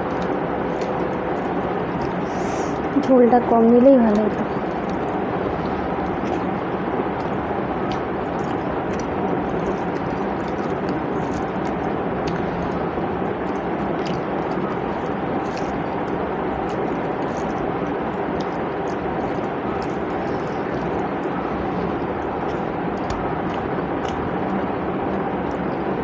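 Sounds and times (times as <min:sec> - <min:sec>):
person chewing food: 0:00.0 - 0:03.0, 0:04.0 - 0:25.9.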